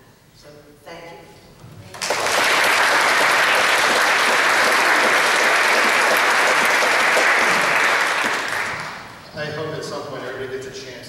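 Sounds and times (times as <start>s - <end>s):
people applauding: 1.9s - 9.2s.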